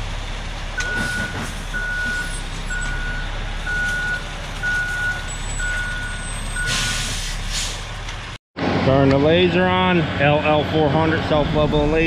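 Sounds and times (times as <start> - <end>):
diesel engine running: 0.0 - 12.0
truck reversing alarm beeping: 0.8 - 7.4.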